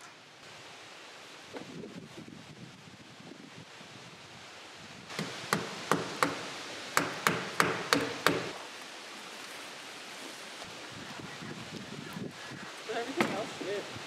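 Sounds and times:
hammer striking nails: 0:05.1 - 0:06.4, 0:07.0 - 0:08.5.

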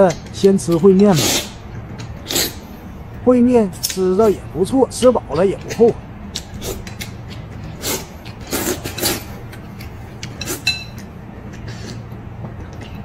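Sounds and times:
slurping soup: 0:01.1 - 0:01.6, 0:07.7 - 0:09.4.

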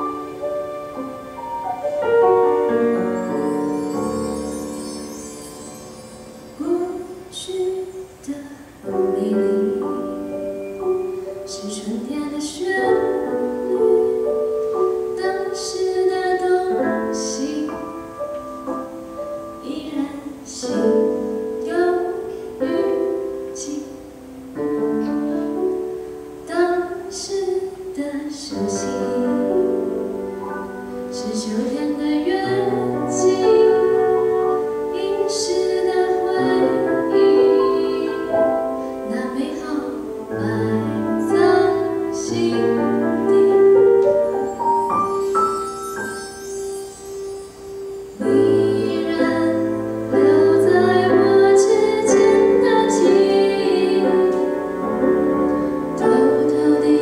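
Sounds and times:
piano accompaniment: 0:00.0 - 0:57.0
woman singing into a microphone: 0:06.6 - 0:10.3, 0:11.5 - 0:18.1, 0:19.6 - 0:30.1, 0:31.1 - 0:44.1, 0:48.2 - 0:54.7, 0:56.0 - 0:57.0.

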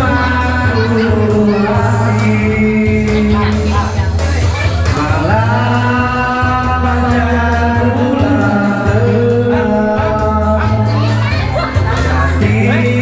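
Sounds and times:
person singing long notes: 0:00.0 - 0:03.8, 0:04.9 - 0:11.0
heavy bass line: 0:00.0 - 0:13.0.

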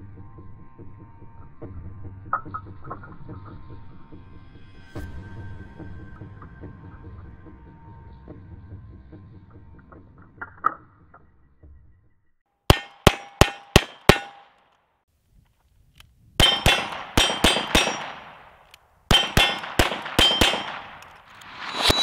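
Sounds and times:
steel targets ringing: 0:12.7 - 0:14.6, 0:16.4 - 0:22.0.

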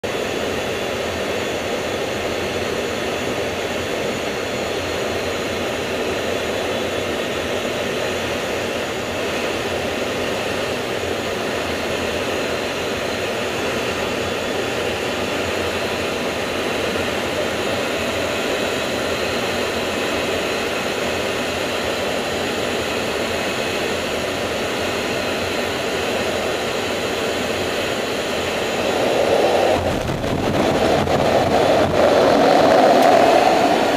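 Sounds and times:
jet engines roaring: 0:00.0 - 0:33.9
jet touching down on deck: 0:04.7 - 0:33.9
rushing air: 0:25.9 - 0:33.9.

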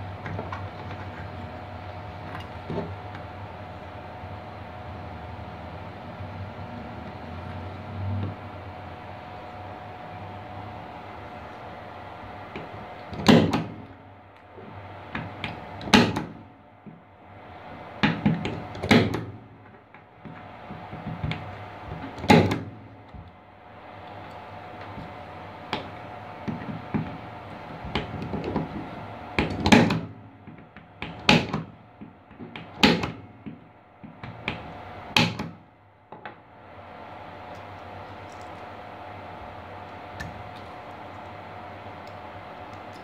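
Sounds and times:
wires and plastic rustling: 0:37.3 - 0:43.0.

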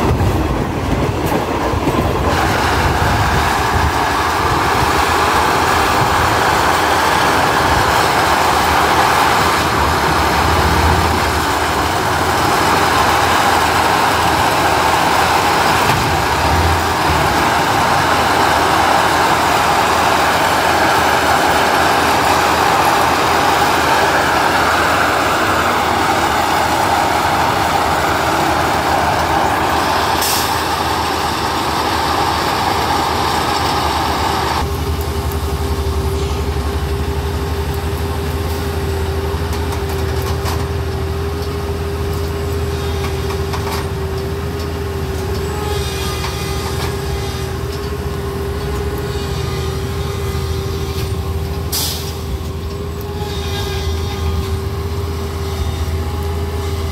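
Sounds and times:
loud rushing noise: 0:00.0 - 0:34.7
machine engine humming: 0:00.0 - 0:56.9.

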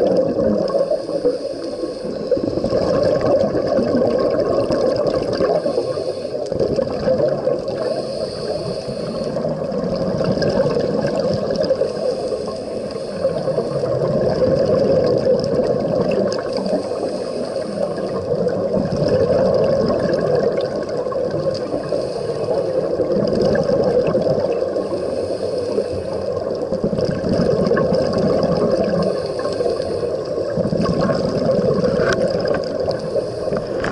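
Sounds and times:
exhaust bubbles: 0:00.0 - 0:01.1, 0:02.3 - 0:08.1, 0:09.3 - 0:12.0, 0:13.2 - 0:16.9, 0:17.8 - 0:24.9, 0:26.3 - 0:29.6, 0:30.2 - 0:33.9
muffled rush of water: 0:00.0 - 0:33.9
faint high hiss of inhale: 0:00.7 - 0:02.7, 0:05.4 - 0:06.5, 0:07.7 - 0:09.7, 0:11.7 - 0:14.2, 0:16.4 - 0:18.3, 0:21.6 - 0:23.0, 0:24.7 - 0:26.7, 0:28.8 - 0:30.6, 0:32.8 - 0:33.9.

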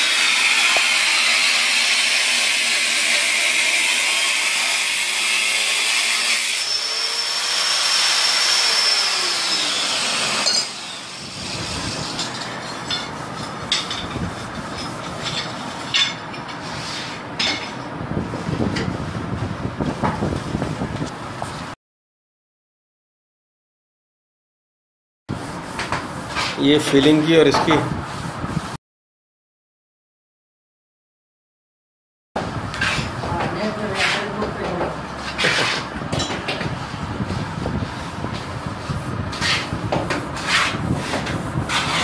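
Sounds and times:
electric tile cutter whining: 0:00.0 - 0:12.8.

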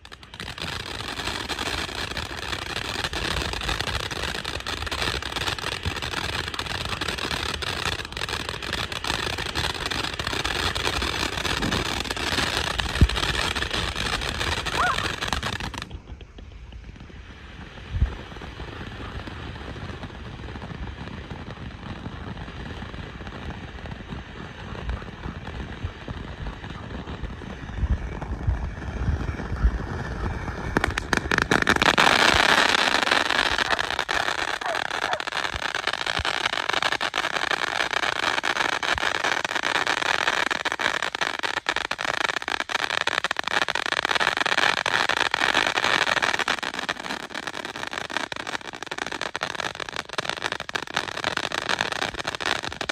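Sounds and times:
firework crackling: 0:00.0 - 0:52.9
firework fountain hissing: 0:00.0 - 0:52.9.

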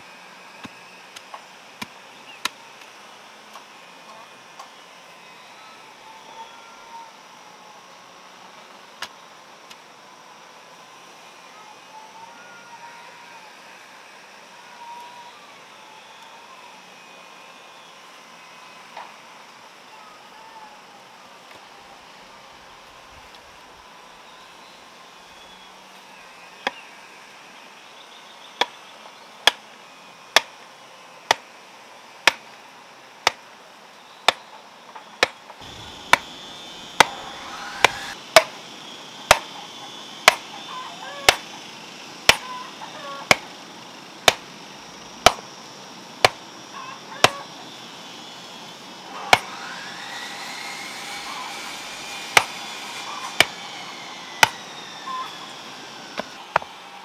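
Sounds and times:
hammer striking fence post: 0:39.3 - 0:39.5, 0:40.2 - 0:40.4, 0:42.3 - 0:42.5, 0:44.2 - 0:44.4, 0:52.2 - 0:52.6, 0:53.3 - 0:53.6.

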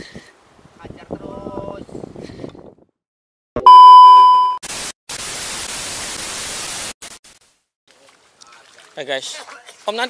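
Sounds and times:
high steady beep: 0:03.6 - 0:04.6.

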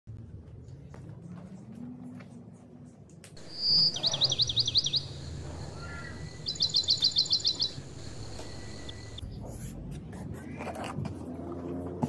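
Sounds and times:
bird singing with trills: 0:03.4 - 0:09.2.

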